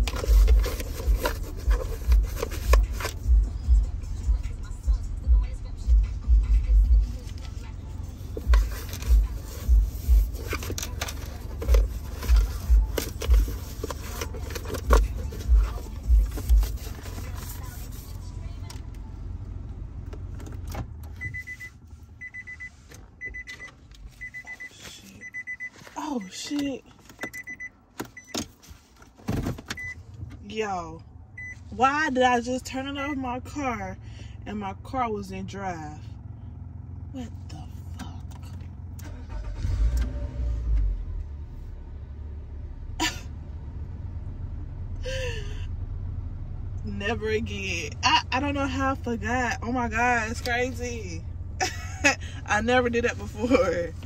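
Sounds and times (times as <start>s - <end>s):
car engine hum: 0.0s - 54.0s
car warning chime beeping: 21.0s - 28.6s, 29.7s - 30.1s, 31.3s - 31.8s.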